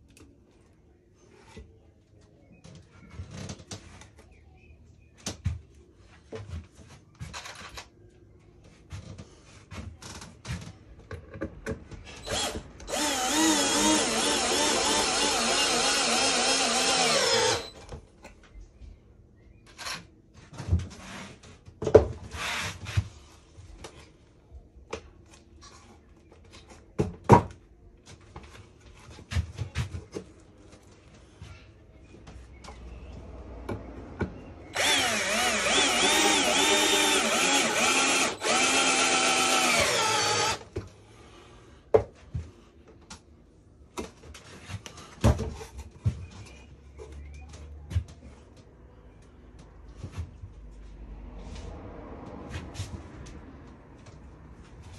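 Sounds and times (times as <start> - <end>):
cordless drill motor running: 12.2 - 17.8, 34.7 - 40.6.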